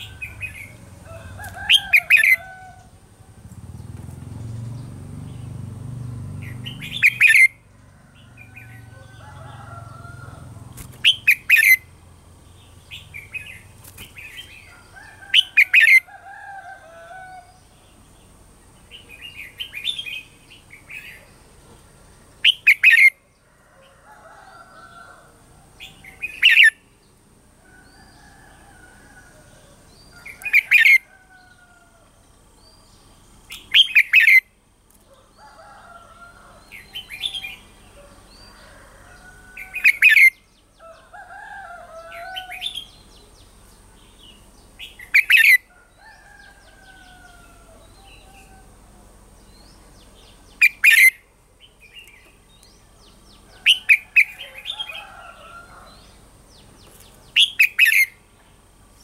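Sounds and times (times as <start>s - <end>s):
bird whistled song: 6.5s - 7.5s, 22.4s - 23.1s, 26.1s - 26.8s, 33.5s - 34.4s, 44.8s - 45.6s, 50.6s - 51.2s, 57.4s - 58.2s.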